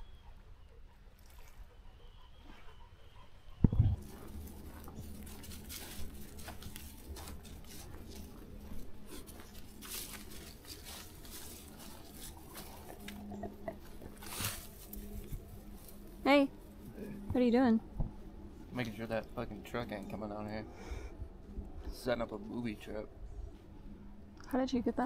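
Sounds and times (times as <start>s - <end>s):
rustling and crunching clicks: 4.0s - 16.0s.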